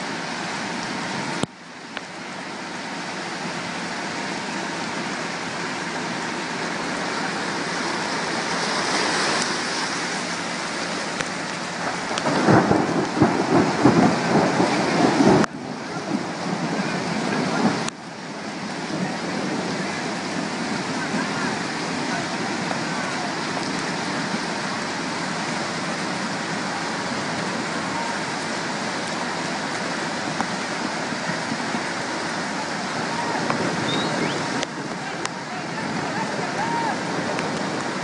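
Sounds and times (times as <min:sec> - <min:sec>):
river water rushing: 0:00.0 - 0:38.0.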